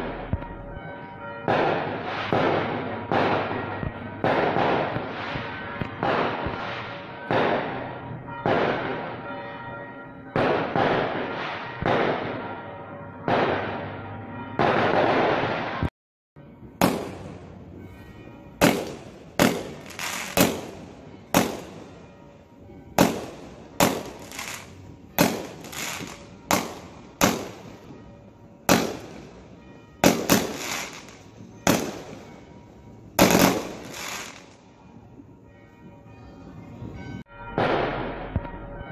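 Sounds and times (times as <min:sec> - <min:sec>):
firework shells bursting and crackling: 0:00.0 - 0:09.4, 0:18.6 - 0:22.2, 0:22.9 - 0:32.4, 0:33.1 - 0:34.7
sharp firework bangs: 0:01.5 - 0:09.3, 0:10.4 - 0:12.6, 0:13.3 - 0:14.0, 0:14.6 - 0:15.9, 0:16.8 - 0:17.4, 0:18.6 - 0:22.0, 0:23.0 - 0:27.9, 0:28.7 - 0:29.4, 0:30.0 - 0:32.3, 0:33.2 - 0:34.6, 0:37.5 - 0:38.5.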